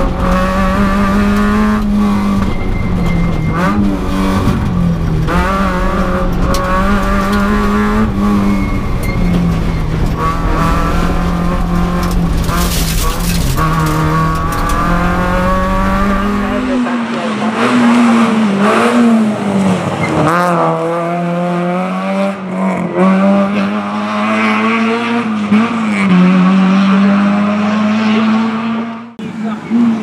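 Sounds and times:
rally car engine revving: 0:00.0 - 0:30.0.

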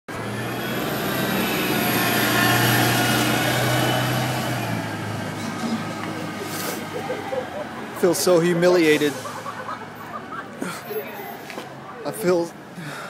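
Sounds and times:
loud engine passing: 0:00.1 - 0:10.2.

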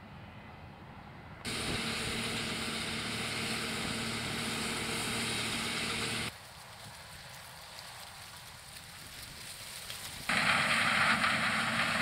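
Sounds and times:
combine harvester running: 0:01.4 - 0:06.4, 0:10.3 - 0:12.0
tractor engine running: 0:01.4 - 0:08.6, 0:10.0 - 0:12.0
grain auger rushing: 0:01.5 - 0:06.4, 0:10.3 - 0:12.0.

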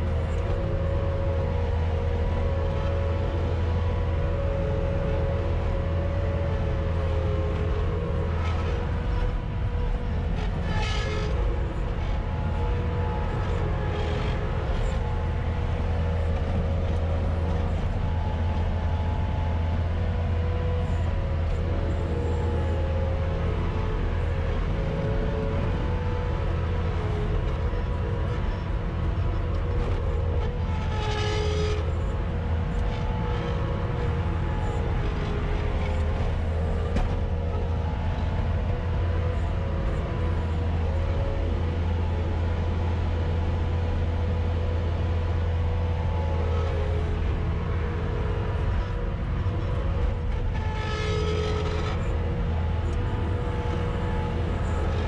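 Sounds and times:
diesel engine running: 0:00.0 - 0:55.0.

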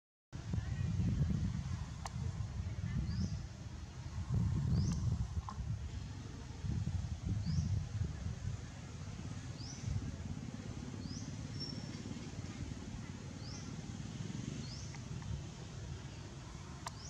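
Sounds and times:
low rumbling noise: 0:00.4 - 0:17.0
bird chirping: 0:14.6 - 0:15.2.

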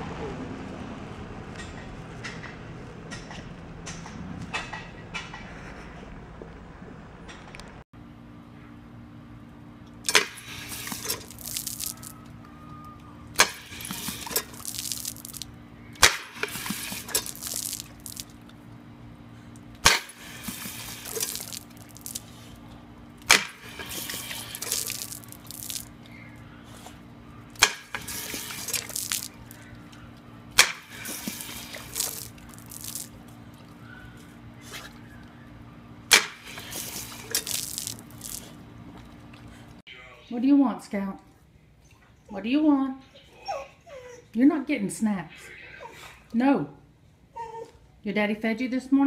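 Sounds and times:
steady low hum: 0:05.3 - 0:40.3
water spraying from hose: 0:10.1 - 0:12.2, 0:13.4 - 0:18.4, 0:19.8 - 0:22.6, 0:23.2 - 0:26.0, 0:27.6 - 0:29.6, 0:30.6 - 0:33.3, 0:36.1 - 0:38.6.

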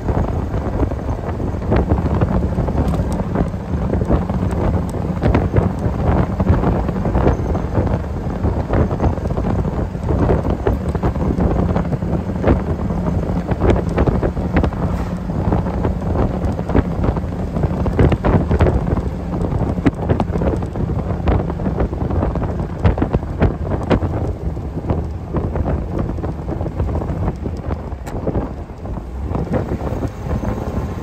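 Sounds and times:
car engine droning: 0:00.0 - 0:31.0
wind buffeting microphone: 0:00.0 - 0:31.0.

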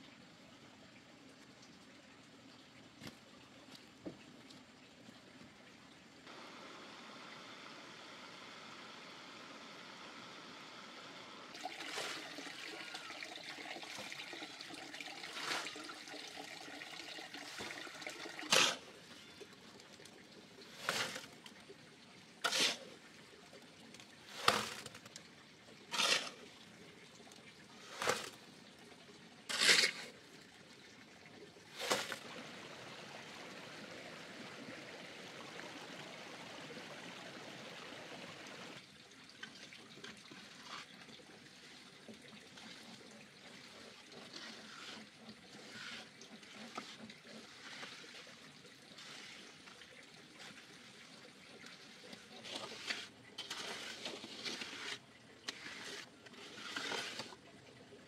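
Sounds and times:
water splashing strokes: 0:11.5 - 0:13.2, 0:13.9 - 0:19.4, 0:20.6 - 0:21.6, 0:22.4 - 0:23.0, 0:24.2 - 0:25.1, 0:25.9 - 0:26.6, 0:27.8 - 0:28.5, 0:29.5 - 0:30.2, 0:31.7 - 0:32.4, 0:40.2 - 0:57.4
water trickling: 0:11.5 - 0:58.0.

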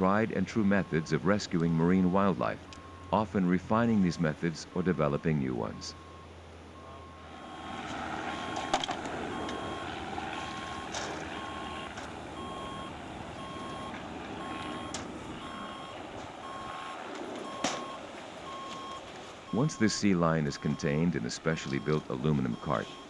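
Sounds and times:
background rush: 0:00.0 - 0:22.8
reversing alarm beeping: 0:00.4 - 0:23.0.

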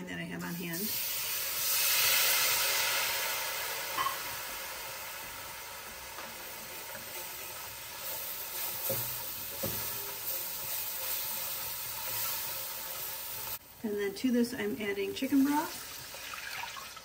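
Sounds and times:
wine sizzling in a hot pan: 0:00.4 - 0:17.0
utensil stirring and scraping pan: 0:06.1 - 0:13.6.

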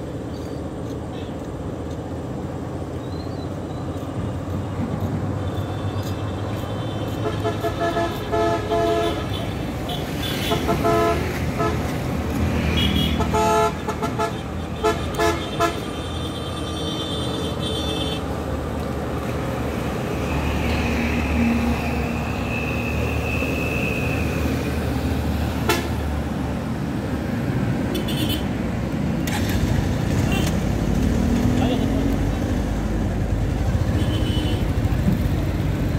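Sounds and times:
rumble of traffic engines: 0:00.0 - 0:35.9
vehicle horns tooting: 0:05.4 - 0:11.9, 0:12.6 - 0:18.3, 0:25.6 - 0:26.0, 0:33.8 - 0:34.8.

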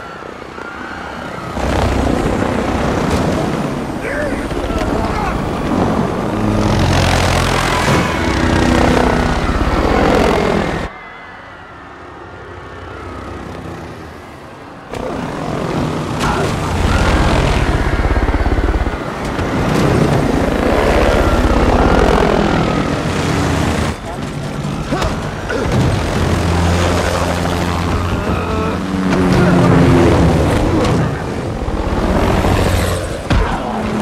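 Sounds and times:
helicopter rotor chop and engine: 0:00.0 - 0:34.0.

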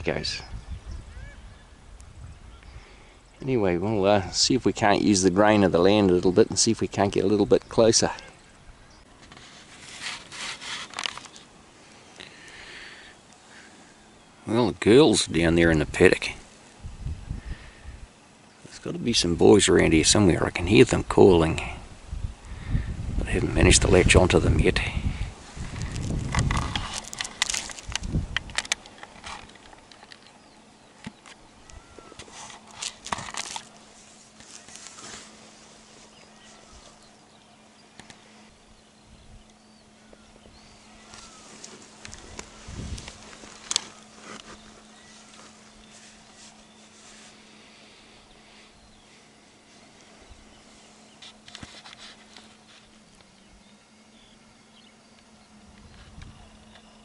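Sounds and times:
distant bird calls: 0:00.0 - 0:57.0
low steady hum: 0:00.0 - 0:57.0
faint bird chirps: 0:00.2 - 0:03.6, 0:30.2 - 0:32.3, 0:36.0 - 0:41.6, 0:52.8 - 0:57.0
clicks and rustling near microphone: 0:09.2 - 0:11.5, 0:25.5 - 0:30.4, 0:32.2 - 0:37.0, 0:41.1 - 0:47.4, 0:51.1 - 0:53.3
gear rustling: 0:25.3 - 0:30.3.

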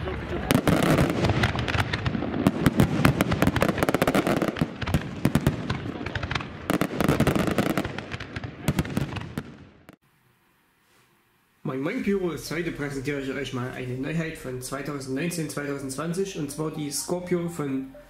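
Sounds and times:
fireworks bangs and crackles: 0:00.0 - 0:10.0.

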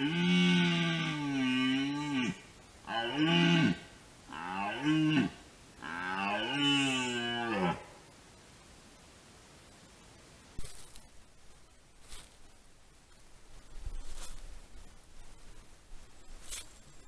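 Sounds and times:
deer stag roaring: 0:00.0 - 0:07.9.

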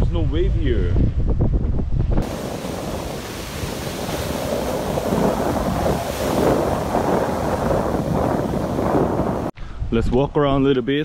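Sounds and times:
ocean surf crashing onto rocks: 0:02.2 - 0:09.6.

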